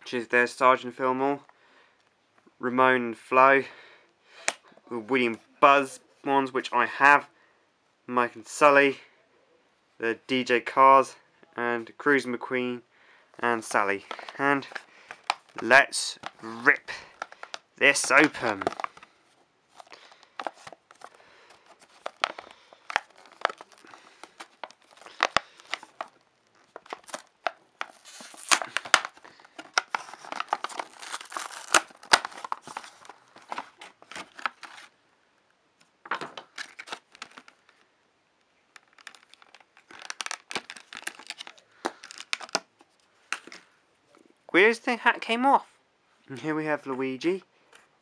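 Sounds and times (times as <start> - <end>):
cardboard packaging ripping: 14.1 - 19.1, 19.7 - 34.9, 36.4 - 37.6, 38.8 - 42.6.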